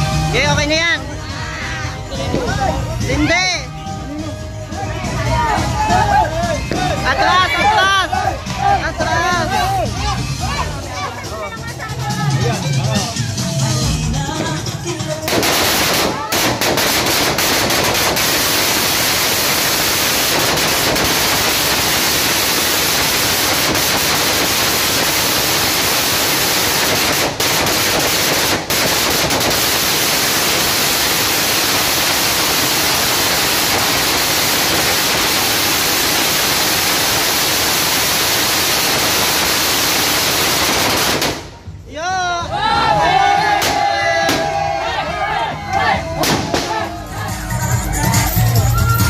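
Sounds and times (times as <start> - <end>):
fireworks crackling: 0.0 - 4.4, 5.0 - 8.4, 14.2 - 41.8.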